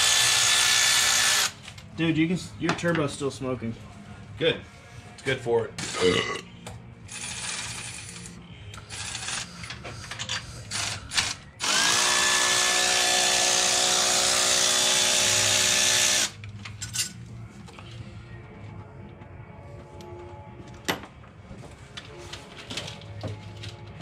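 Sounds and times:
power tool motor whining: 0:11.6 - 0:16.4.

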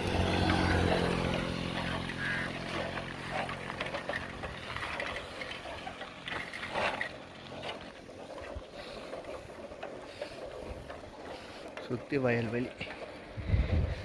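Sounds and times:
motorcycle engine passing: 0:00.0 - 0:14.0
wind on microphone: 0:13.3 - 0:14.0.

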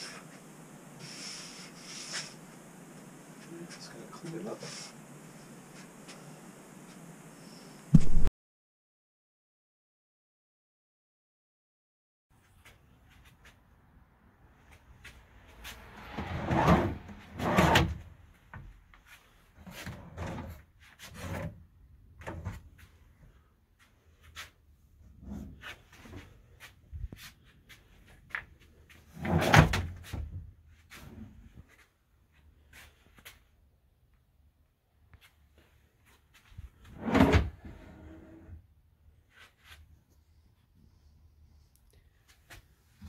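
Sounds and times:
wooden drawers sliding: 0:16.2 - 0:18.0, 0:29.1 - 0:30.2, 0:36.9 - 0:38.5.

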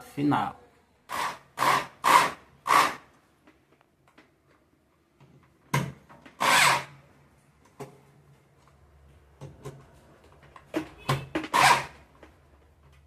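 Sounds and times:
electric drill driving screw: 0:01.1 - 0:03.1, 0:06.4 - 0:07.0, 0:11.5 - 0:11.9.

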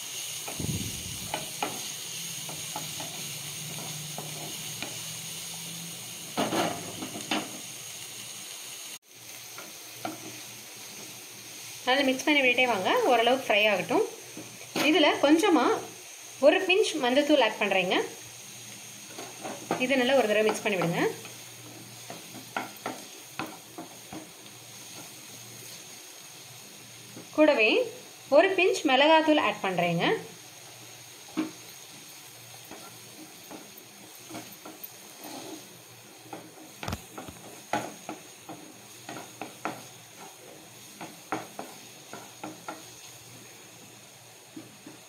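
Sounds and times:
vegetables sizzling in oil: 0:00.0 - 0:45.0
spatula scraping and tapping pan: 0:01.3 - 0:05.0, 0:09.5 - 0:10.4, 0:19.1 - 0:25.8, 0:31.2 - 0:43.2, 0:44.5 - 0:45.0.

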